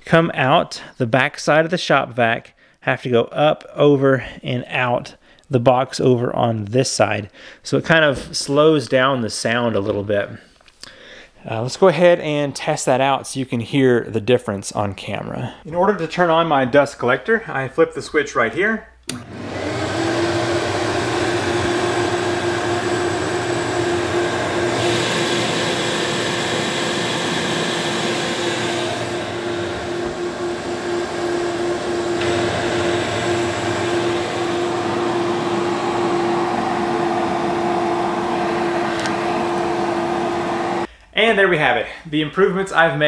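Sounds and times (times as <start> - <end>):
shop vac drone with whine: 19.1 - 40.9.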